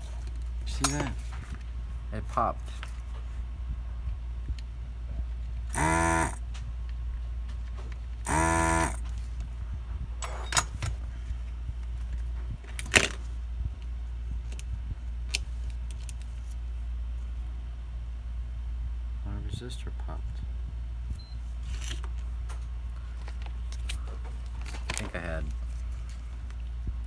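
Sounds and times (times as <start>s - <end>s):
desoldering gun vacuum pump: 5.7s - 6.4s, 8.3s - 9.1s.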